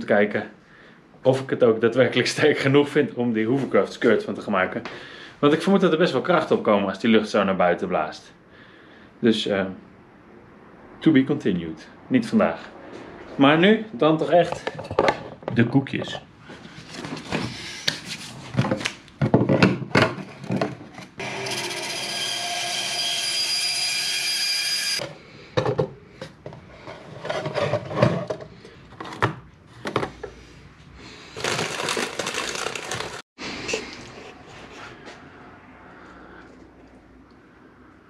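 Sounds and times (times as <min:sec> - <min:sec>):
power tool running: 0:21.2 - 0:25.0.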